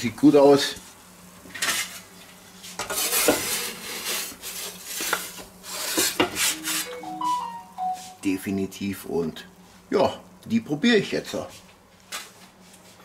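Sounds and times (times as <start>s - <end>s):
metal peel scraping pizza stone: 2.8s - 6.9s.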